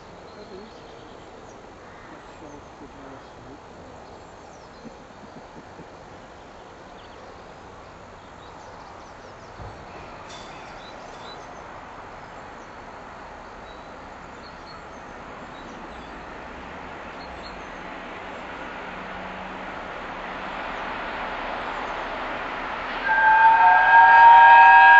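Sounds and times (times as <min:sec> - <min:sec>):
steam train approaching: 0:16.3 - 0:24.9.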